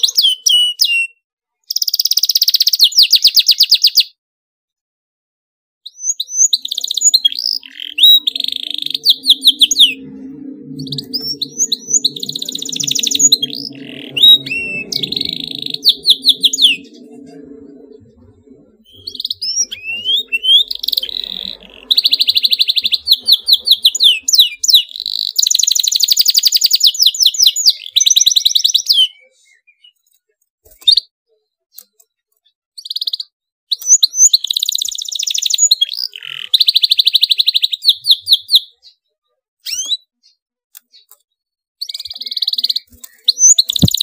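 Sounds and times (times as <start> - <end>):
canary singing trills: 5.9 - 30.0, 41.8 - 44.0.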